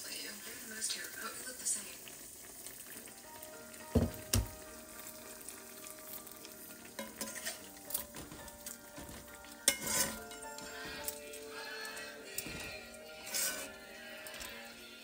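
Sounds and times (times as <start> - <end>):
stew bubbling and sizzling: 0.0 - 15.0
knocks on a pan: 3.9 - 4.6.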